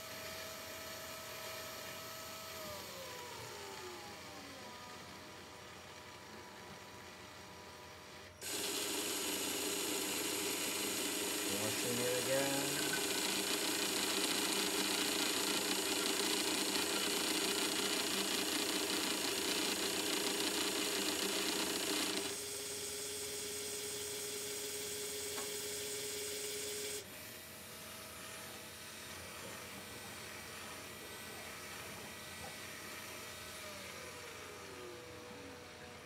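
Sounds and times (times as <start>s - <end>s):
small pumps running: 8.0s - 36.0s.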